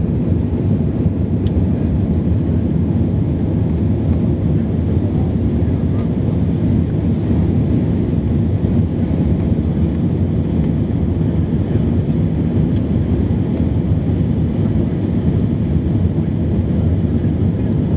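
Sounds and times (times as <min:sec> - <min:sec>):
airliner cabin engine rumble: 0:00.0 - 0:17.9.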